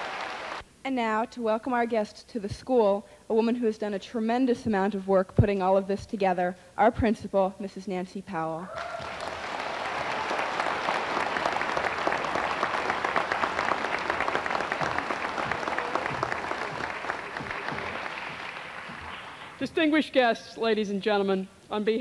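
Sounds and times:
audience applauding: 0.0 - 0.6, 8.8 - 19.7.

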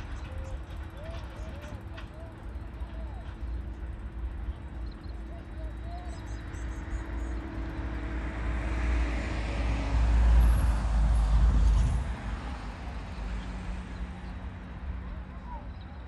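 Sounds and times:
road vehicle passing: 5.0 - 16.0.

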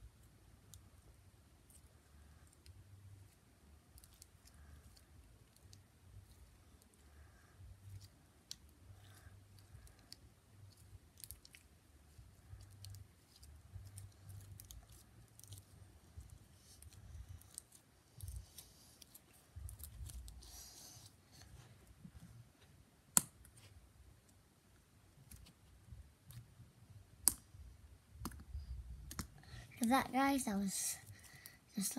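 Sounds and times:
slime squishing: 1.6 - 21.2.

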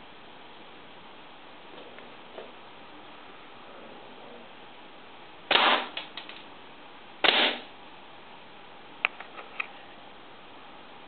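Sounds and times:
compressed air blasts: 5.5 - 6.0, 7.2 - 7.7.

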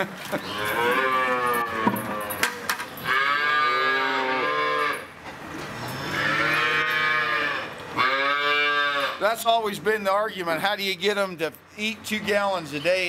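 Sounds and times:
calves mooing: 0.4 - 5.1, 5.8 - 9.3.

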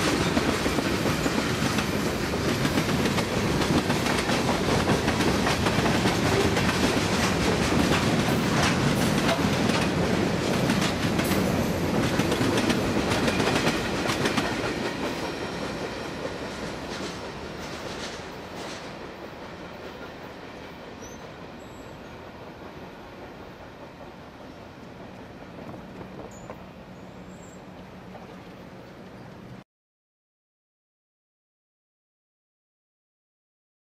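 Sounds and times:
train wheels clicking over rail joints: 0.0 - 21.6
freight train rumble: 0.0 - 29.6.

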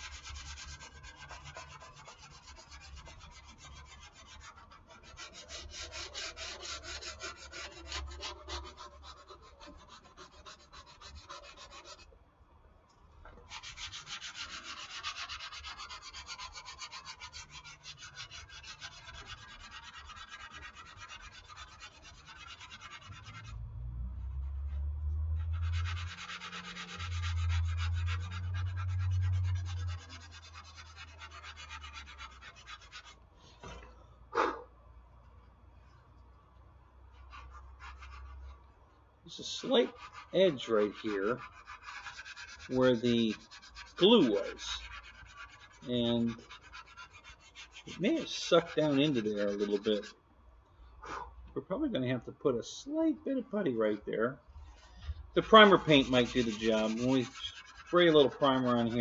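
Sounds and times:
sandpaper rubbing: 0.0 - 12.1, 13.4 - 23.6, 24.4 - 33.2, 37.1 - 38.6, 39.3 - 50.2, 54.6 - 59.0.

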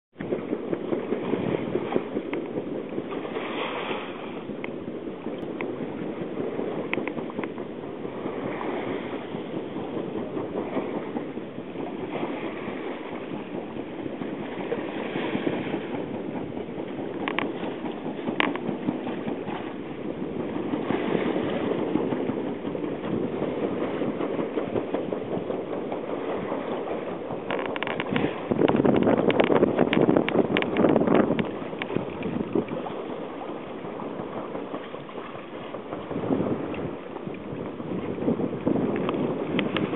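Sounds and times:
sea: 0.1 - 39.9
wind rushing: 0.2 - 39.9.

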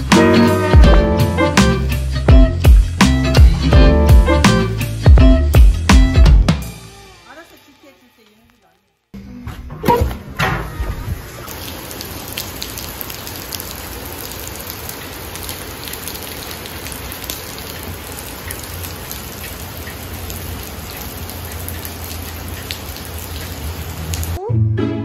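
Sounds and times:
heavy rain pouring: 0.0 - 2.2, 10.7 - 24.4.

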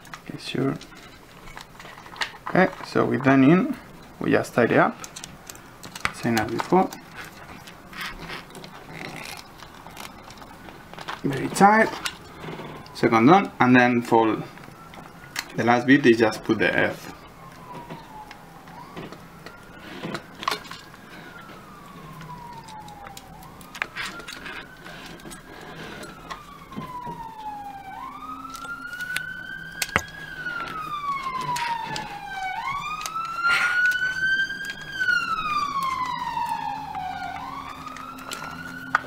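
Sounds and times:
emergency vehicle siren wailing: 0.0 - 39.0
wires clicking into plastic socket: 22.2 - 24.5, 28.2 - 39.0.

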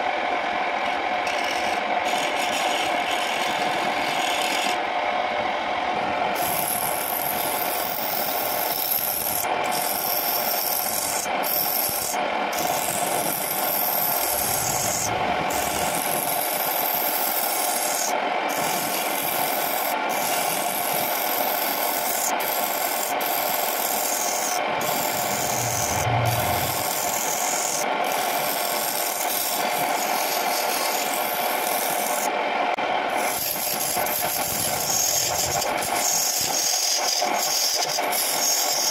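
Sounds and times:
lathe motor hum: 0.0 - 5.0, 19.6 - 27.8
chisel scraping spinning wood: 0.8 - 4.8, 6.4 - 32.3, 33.2 - 38.9.

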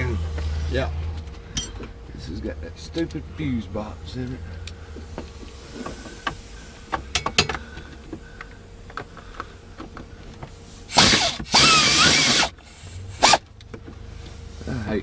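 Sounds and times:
cordless power driver spinning: 10.9 - 12.6.

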